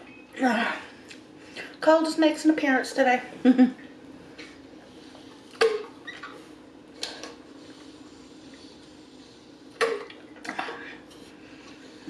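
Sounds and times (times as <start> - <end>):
faint steady hum: 0.0 - 12.0
person gulping water: 9.8 - 11.0.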